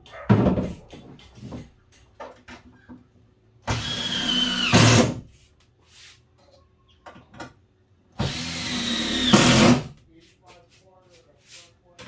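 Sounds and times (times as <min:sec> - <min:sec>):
cordless drill driving screw into wood: 0:03.7 - 0:05.2, 0:08.2 - 0:09.9.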